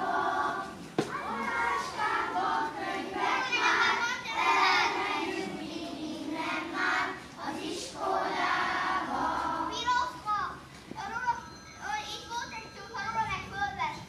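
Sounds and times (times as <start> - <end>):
children singing in unison: 0.0 - 9.7.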